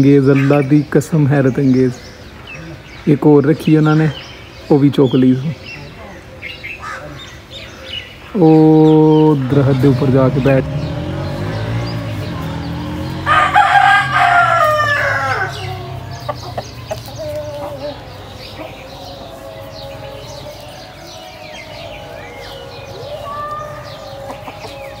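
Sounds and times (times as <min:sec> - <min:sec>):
small birds chirping: 0:00.0 - 0:25.0
rooster crowing: 0:12.2 - 0:25.0.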